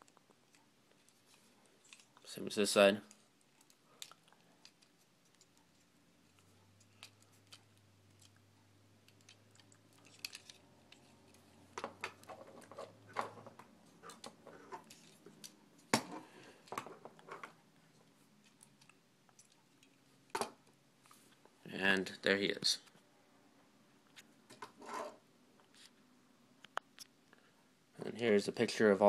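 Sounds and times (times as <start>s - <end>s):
plastic toy parts clicking: 1.8s - 2.3s, 3.1s - 5.6s, 6.8s - 8.4s, 9.1s - 15.6s.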